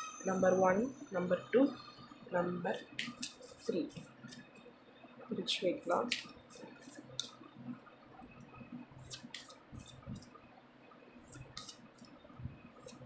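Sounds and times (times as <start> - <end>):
cards clicking and tapping: 5.9 - 7.3.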